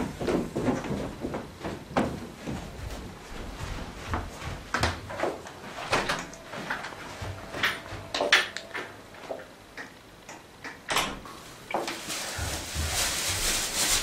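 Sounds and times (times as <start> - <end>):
footsteps: 0.0 - 10.0, 11.2 - 14.0
wooden door opening and shutting: 4.8 - 9.4, 10.8 - 11.3
door latch clicks: 10.7 - 11.2.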